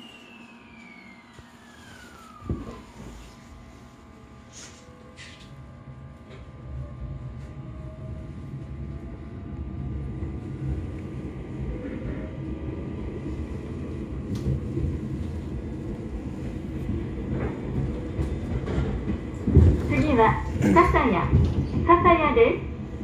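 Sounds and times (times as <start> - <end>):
train wheels and motors rumbling: 0.0 - 23.0
rail clacks: 16.9 - 22.1.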